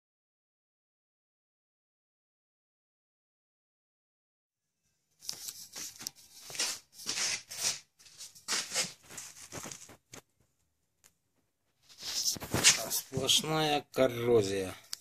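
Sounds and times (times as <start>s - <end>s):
rustling and scuffing: 5.2s - 10.4s, 11.7s - 13.5s.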